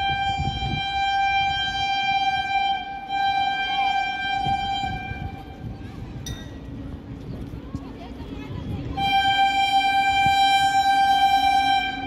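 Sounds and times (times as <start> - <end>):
train horn blast: 0.0 - 5.8, 9.0 - 12.0.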